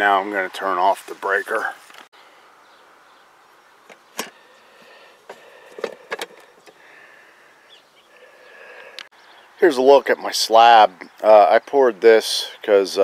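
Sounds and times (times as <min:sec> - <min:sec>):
handling clicks and knocks: 0:05.3 - 0:06.8.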